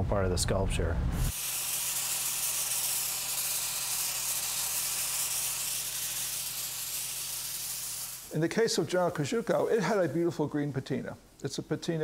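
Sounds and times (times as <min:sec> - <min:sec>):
pressure washer spraying: 0:01.2 - 0:08.5.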